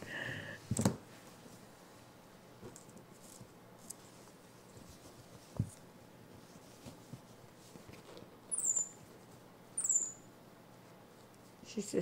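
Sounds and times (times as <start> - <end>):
baby monkey squeaking: 8.5 - 9.0, 9.8 - 10.3.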